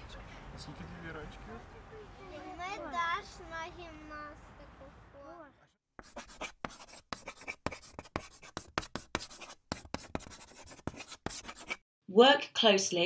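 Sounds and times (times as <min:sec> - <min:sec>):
chalk scratching on blackboard: 0:06.0 - 0:11.8.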